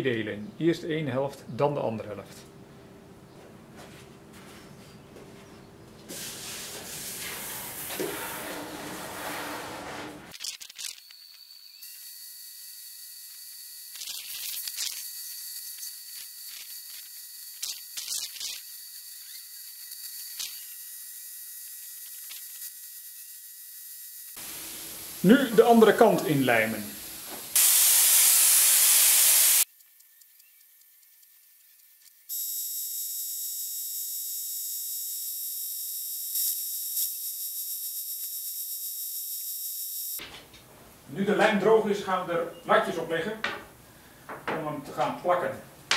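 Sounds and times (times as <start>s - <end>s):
spray gun hissing: 6.1s - 9.0s, 24.4s - 29.7s.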